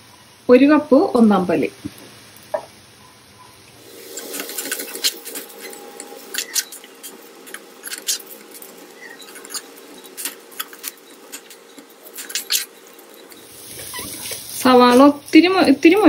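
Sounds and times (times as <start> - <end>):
onions sizzling in oil: 0.2 - 16.0
steel spoon scraping a pan: 3.9 - 15.4.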